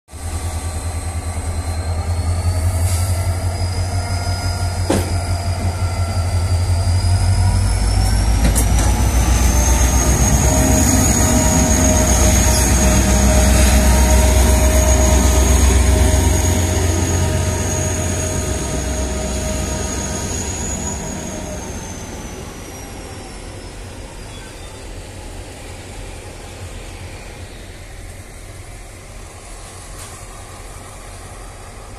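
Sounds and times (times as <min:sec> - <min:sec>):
diesel locomotive passing: 0:00.1 - 0:31.9
high engine whine: 0:00.2 - 0:24.1.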